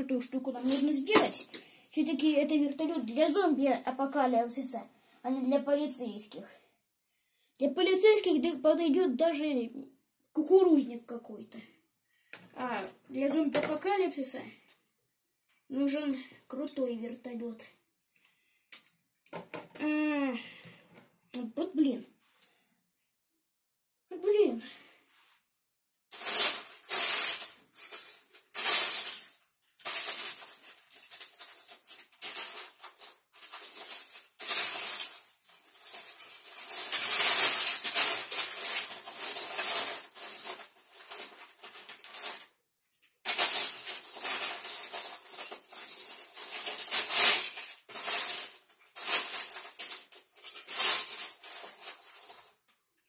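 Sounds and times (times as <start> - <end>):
plastic bricks rattling: 26.2 - 42.4.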